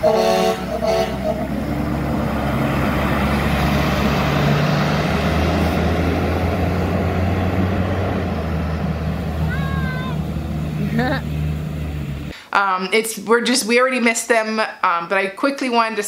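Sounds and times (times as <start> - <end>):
motorhome engine droning: 0.0 - 12.3
road noise: 0.0 - 12.4.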